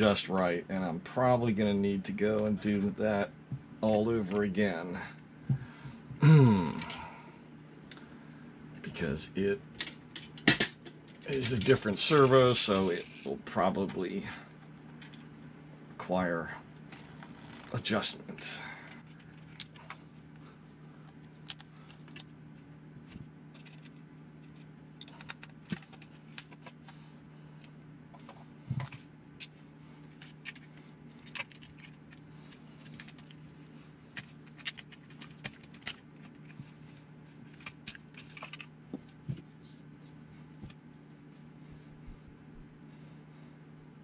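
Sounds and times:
steady low hum: 0.0 - 44.0
small parts and tools clattering: 9.8 - 13.3, 23.0 - 26.8, 30.1 - 39.5.

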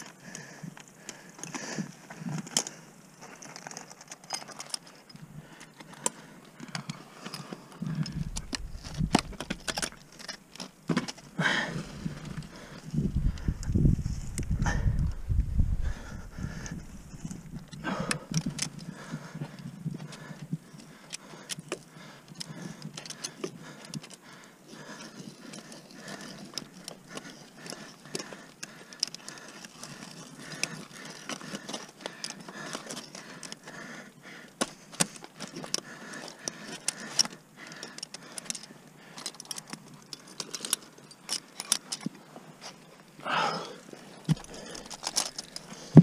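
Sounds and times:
climbing hardware clinking: 2.2 - 11.4, 34.6 - 42.9, 44.1 - 46.0.

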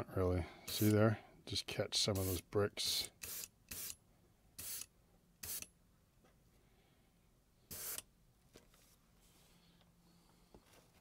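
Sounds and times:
airbrush spraying hiss: 0.7 - 0.9, 2.2 - 2.4, 3.2 - 3.9, 4.6 - 5.6, 7.7 - 8.0.

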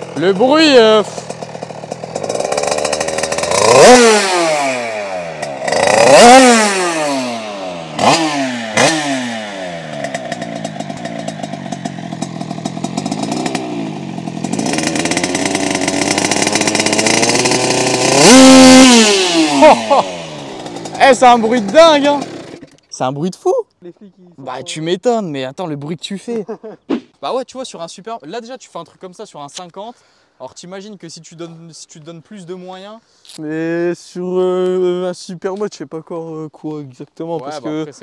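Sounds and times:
two-stroke engine revving: 0.0 - 22.9.

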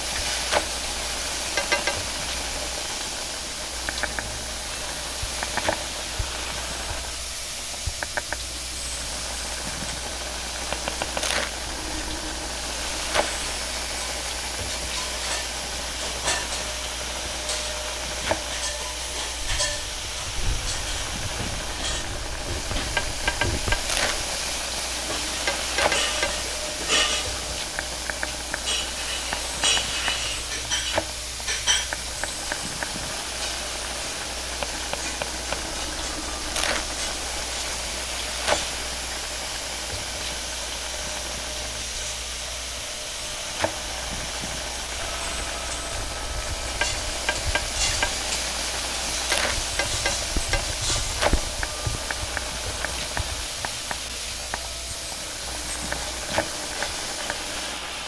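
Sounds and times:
food sizzling in a wok: 0.0 - 58.0
gas burner flame hissing: 0.0 - 58.0
metallic clinks and scrapes of wok: 23.1 - 37.8.

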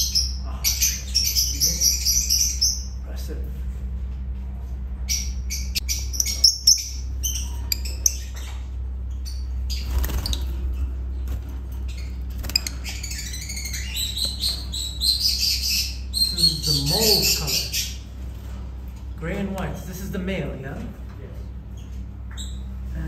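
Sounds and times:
lovebirds chirping: 0.0 - 3.0, 5.0 - 18.2
steady low hum: 0.0 - 23.0.

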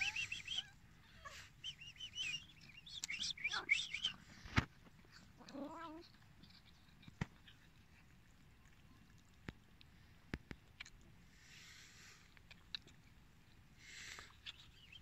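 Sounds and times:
cats meowing: 0.0 - 1.5, 5.4 - 6.7.

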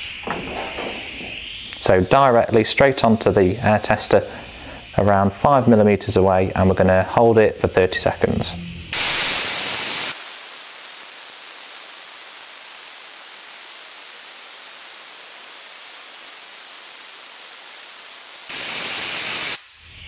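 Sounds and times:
compressed air hissing: 0.0 - 5.6, 8.9 - 10.3, 13.2 - 20.0.

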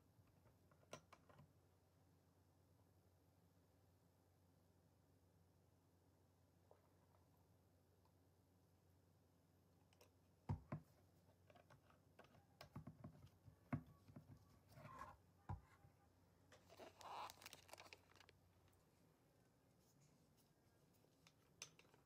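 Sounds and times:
screw cap scratchy rustles: 16.6 - 18.3.

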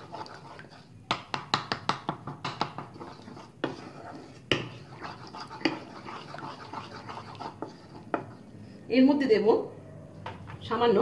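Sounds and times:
ladle knocking against a pan: 1.1 - 3.0.

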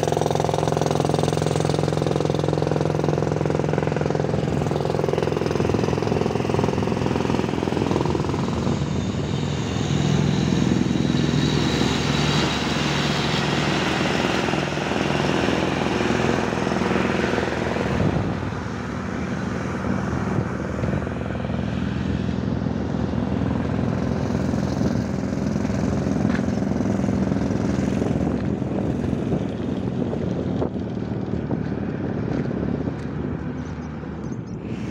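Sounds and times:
air compressor running: 0.0 - 27.2.

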